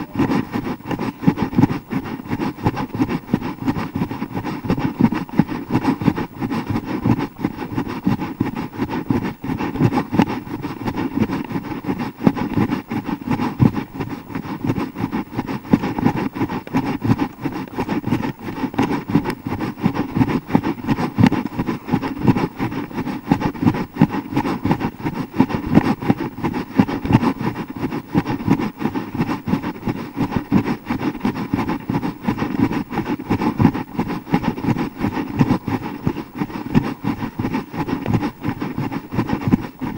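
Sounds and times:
camera microphone buffeted while running: 0.0 - 39.9.

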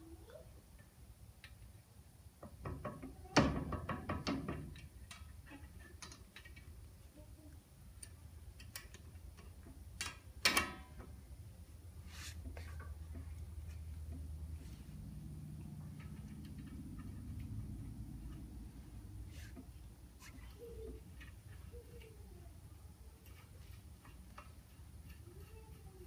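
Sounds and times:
light ticks of small fasteners: 8.0 - 10.2.

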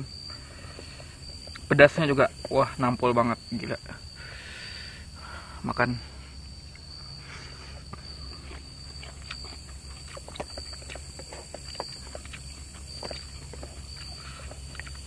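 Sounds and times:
high insect whine: 0.0 - 15.0
chewing: 7.7 - 15.0.

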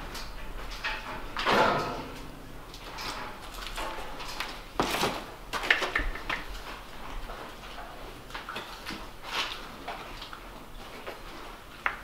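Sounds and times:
knocks and scrapes in metal stalls: 0.7 - 5.3.

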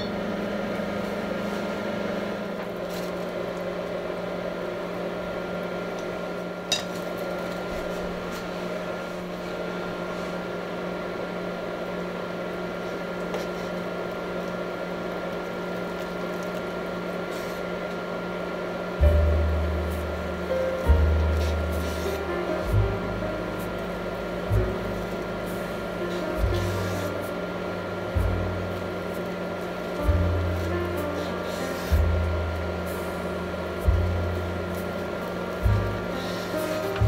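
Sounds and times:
kitchen appliance humming: 0.0 - 37.0
deep bass music note: 19.0 - 37.0.

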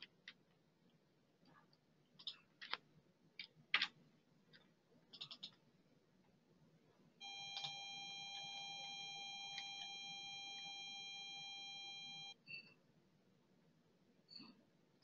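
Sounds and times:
computer mouse clicks: 1.6 - 5.7
high electronic tone: 7.2 - 12.4.

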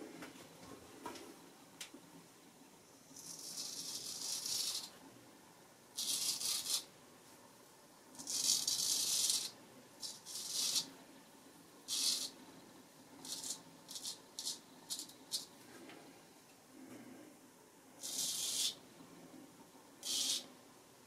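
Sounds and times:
straight razor scraping stubble: 3.2 - 4.9.

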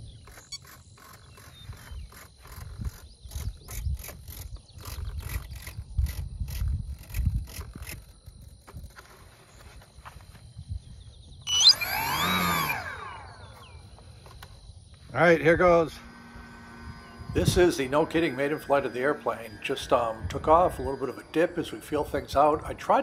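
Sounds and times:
wind rumble on microphone: 1.6 - 9.1, 9.8 - 11.5, 15.4 - 23.0
rising electronic start-up tones: 11.5 - 13.8, 15.2 - 23.0.

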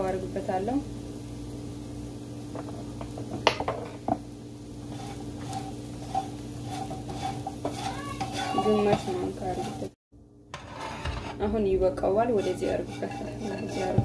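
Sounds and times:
chickpeas rattling in a frying pan: 2.6 - 10.0, 12.1 - 14.0
steady low hum: 8.6 - 14.0.

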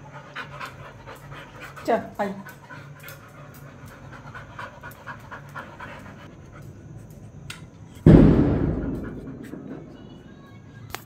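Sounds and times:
dog panting: 0.0 - 10.3
sudden loud thump: 8.1 - 10.2.

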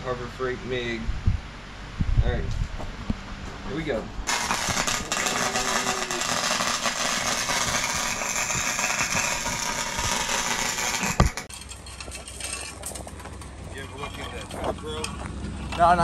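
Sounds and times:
welder arc crackling: 4.3 - 11.5.

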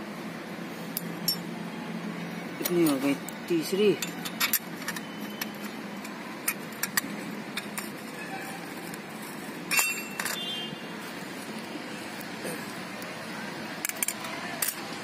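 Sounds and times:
metal clutch parts clinking: 3.7 - 9.0, 9.7 - 10.5.

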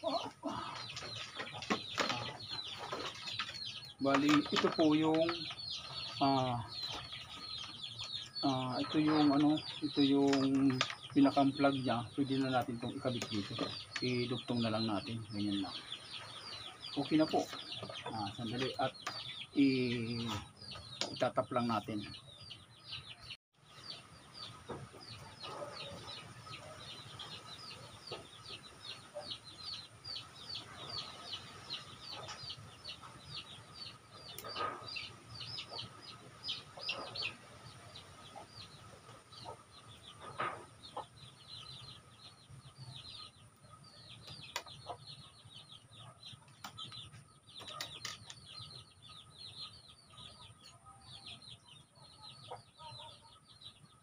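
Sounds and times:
chicks peeping: 0.0 - 54.0.

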